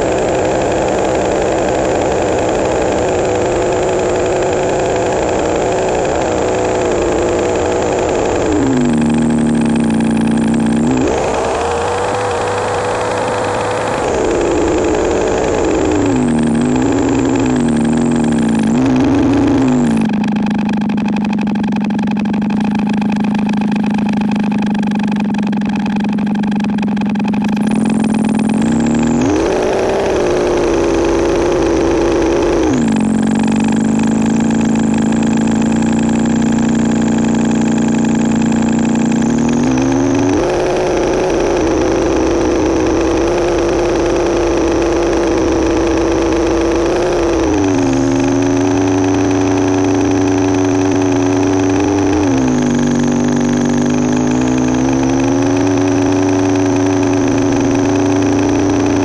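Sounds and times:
synthesizer drone: 0:00.0 - 0:59.0.

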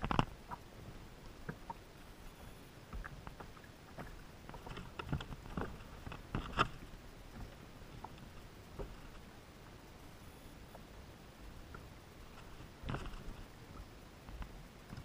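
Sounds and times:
fishing gear clicking and knocking: 0:04.0 - 0:06.8.

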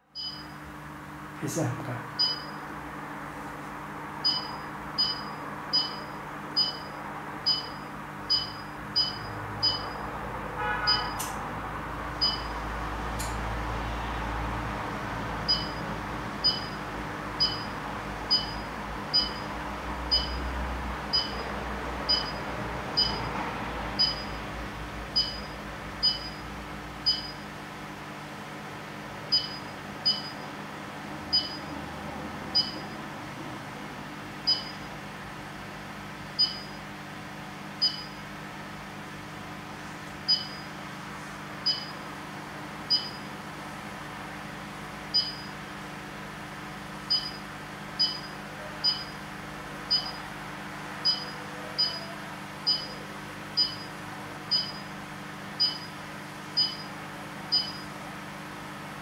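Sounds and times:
short high beeps: 0:00.2 - 0:00.6, 0:04.2 - 0:10.1, 0:36.4 - 0:36.8.

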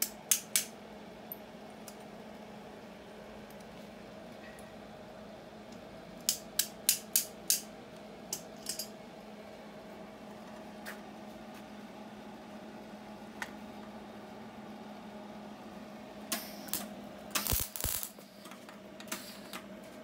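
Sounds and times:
electrode clicks on metal: 0:00.0 - 0:00.7, 0:16.3 - 0:18.2
steady electric hum: 0:00.0 - 0:20.0.

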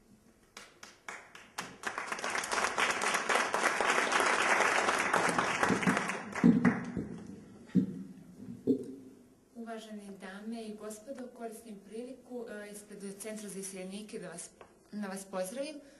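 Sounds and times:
audience applause: 0:00.6 - 0:07.1.

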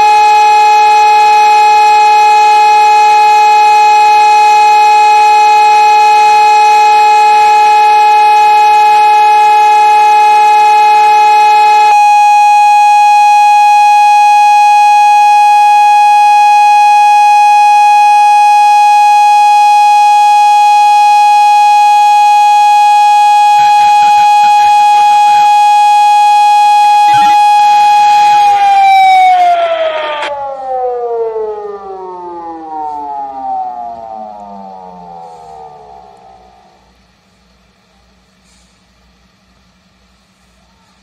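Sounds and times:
alarm siren steady high tone: 0:00.0 - 0:38.2
lower siren tone: 0:00.0 - 0:38.2
background hiss: 0:34.6 - 0:41.0.

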